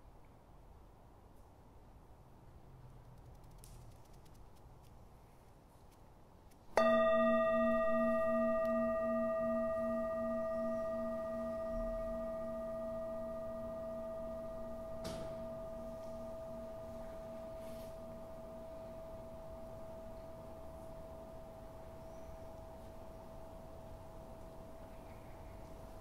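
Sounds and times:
singing bowl ringing: 0:06.8 - 0:26.0.

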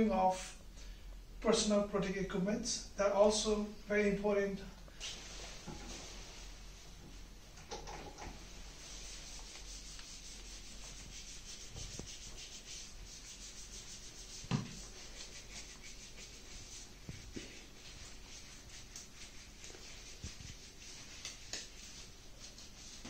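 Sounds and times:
gloved hands rubbing: 0:08.7 - 0:23.0
thump: 0:14.5 - 0:14.8.

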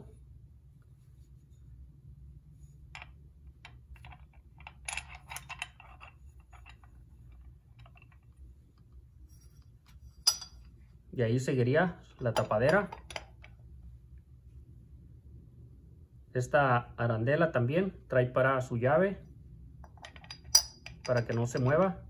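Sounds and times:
low hum: 0:00.0 - 0:18.1
metal parts clicking: 0:03.0 - 0:08.3.

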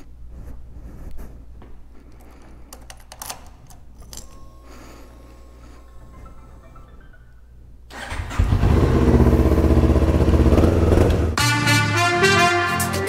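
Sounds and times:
faint steady whine: 0:03.6 - 0:07.9.

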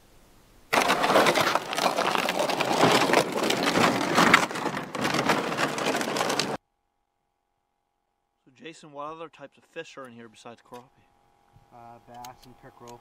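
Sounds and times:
sled scraping over crusty snow: 0:00.7 - 0:06.6.

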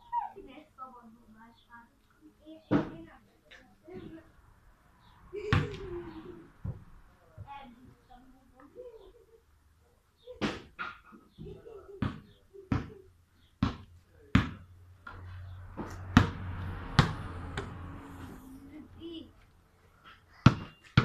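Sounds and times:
basketball bouncing on hard ground: 0:12.0 - 0:13.0, 0:13.6 - 0:15.2, 0:15.8 - 0:17.8, 0:20.4 - 0:21.0.

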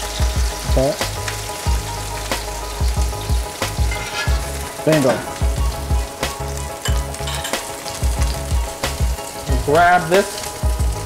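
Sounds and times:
steak sizzling in skillet: 0:00.0 - 0:11.0
metal spoon knocking pan: 0:06.8 - 0:07.7.

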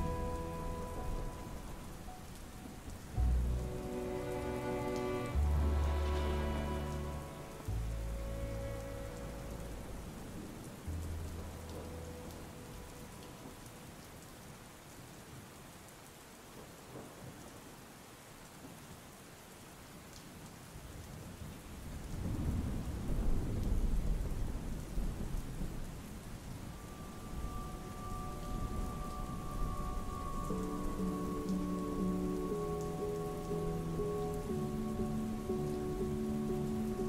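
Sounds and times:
thunder rumbling: 0:00.0 - 0:13.6, 0:22.2 - 0:37.0
heavy rain: 0:00.0 - 0:37.0.

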